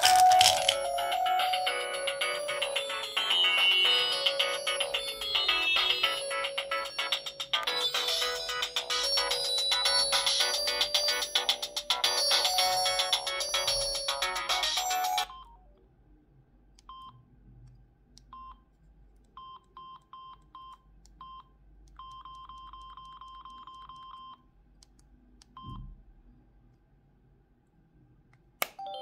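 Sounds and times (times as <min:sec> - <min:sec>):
phone ringtone: 0:00.0 - 0:15.5.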